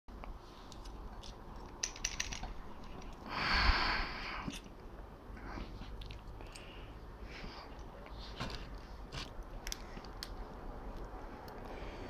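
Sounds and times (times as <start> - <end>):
small metallic clicks and taps: 0.7 - 3.2.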